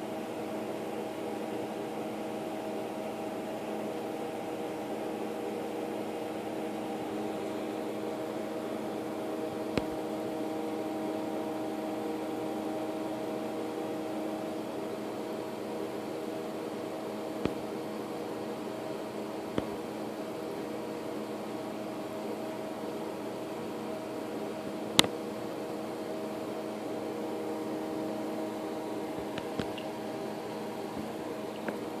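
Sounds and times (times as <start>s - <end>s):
machine hum: 0.0s - 32.0s.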